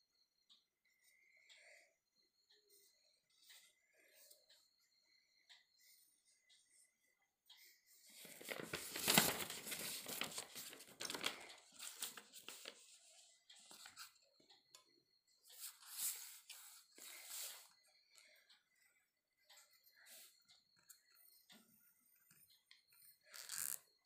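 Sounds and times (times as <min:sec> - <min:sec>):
paper rustling: 0:08.2 - 0:12.9.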